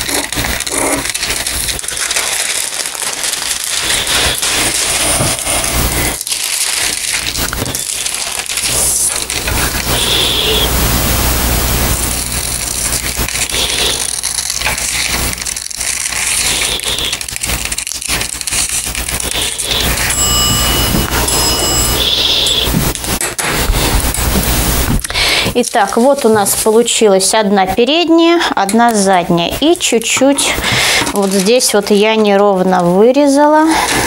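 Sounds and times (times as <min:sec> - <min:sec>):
scissors snipping paper: 0:00.0 - 0:10.3, 0:12.2 - 0:20.2, 0:29.6 - 0:32.4
paper crinkling and rustling: 0:00.0 - 0:10.5, 0:12.1 - 0:20.2, 0:29.8 - 0:32.6, 0:33.4 - 0:34.0.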